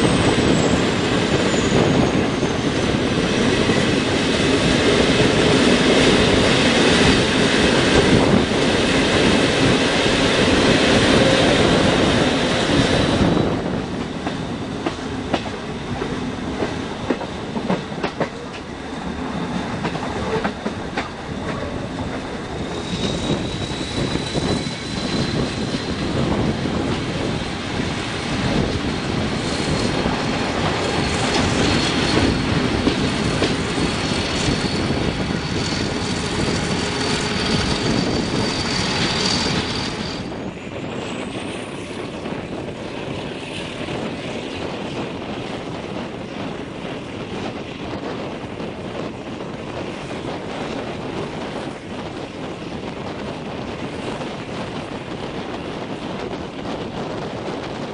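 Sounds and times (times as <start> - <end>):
high wheel squeal: 0.0 - 14.9, 20.1 - 42.3
train rolling noise: 0.0 - 57.9.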